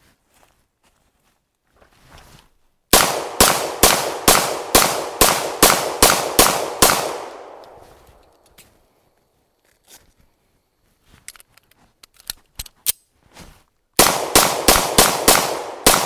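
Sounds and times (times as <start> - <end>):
pistol shots: 2.9 - 7.8, 14.0 - 16.0.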